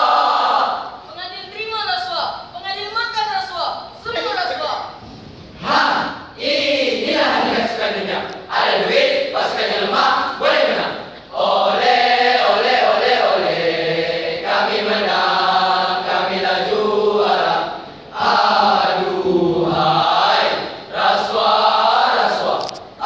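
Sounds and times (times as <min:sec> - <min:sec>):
boys chanting in unison: 0:05.6 - 0:22.7.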